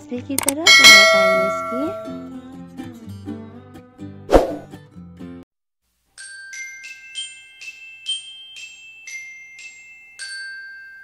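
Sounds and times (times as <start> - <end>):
bell-like mallet jingle: 0.5 - 2.4, 6.2 - 11.0.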